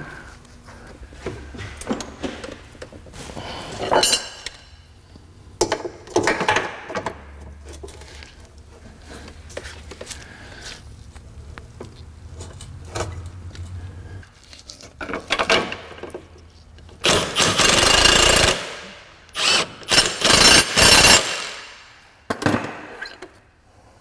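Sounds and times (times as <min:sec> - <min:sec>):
impact wrench hammering: 0:17.0 - 0:22.9.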